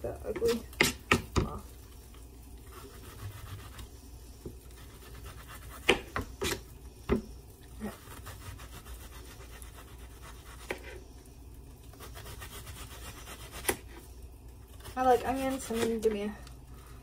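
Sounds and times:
knife scraping onion skin: 0:02.7 - 0:03.9, 0:04.7 - 0:06.7, 0:07.8 - 0:11.0, 0:11.9 - 0:14.0, 0:14.7 - 0:16.2.

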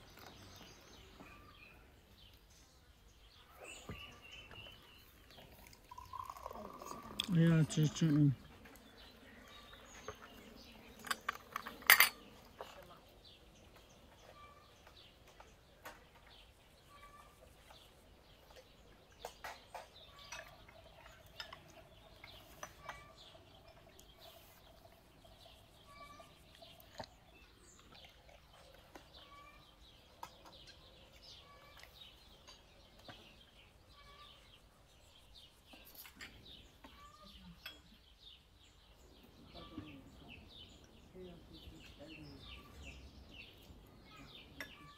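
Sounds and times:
faint bird chirps: 0:14.0 - 0:28.0, 0:28.6 - 0:38.4, 0:39.0 - 0:44.9.

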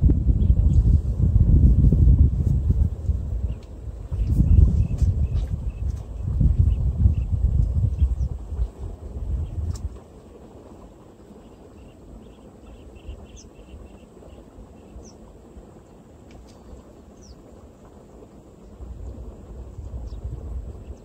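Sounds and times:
wind on microphone: 0:00.0 - 0:21.0
bird chirps: 0:11.4 - 0:15.2.

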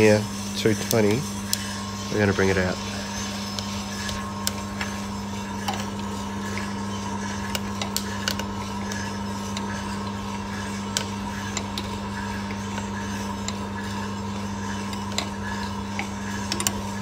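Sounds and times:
coffee roaster humming: 0:00.0 - 0:17.0
coffee beans popping: 0:03.5 - 0:17.0.

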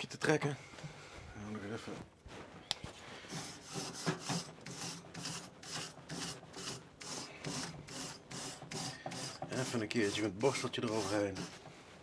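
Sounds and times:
grill brush scraping metal grate: 0:03.2 - 0:11.8.

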